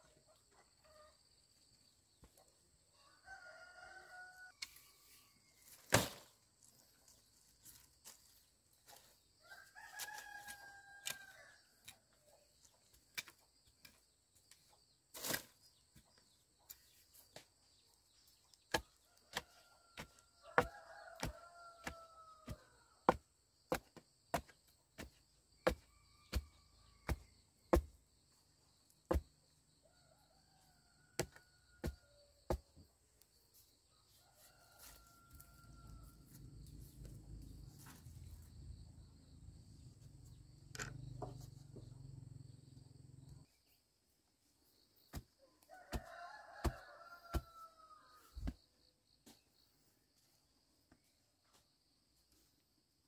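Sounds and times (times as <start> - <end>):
rooster crowing: 3.0 - 4.7, 9.4 - 11.8, 19.1 - 23.2, 29.8 - 32.5, 34.2 - 36.4, 45.4 - 48.6.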